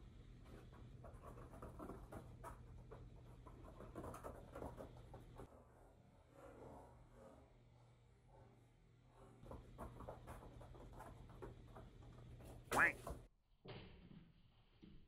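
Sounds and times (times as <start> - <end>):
faint scratching: 0.4 - 11.3.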